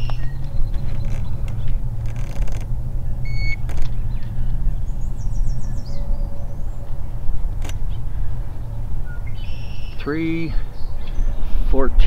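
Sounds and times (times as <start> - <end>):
sharp clicks: 0.0 - 4.3, 7.5 - 8.0
bird chirping: 0.0 - 11.6
steady low rumble: 0.0 - 12.0
digital scale beep: 3.3 - 3.6.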